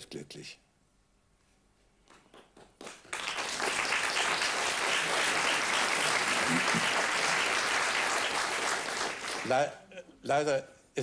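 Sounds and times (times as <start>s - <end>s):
audience applauding: 2.1s - 9.8s.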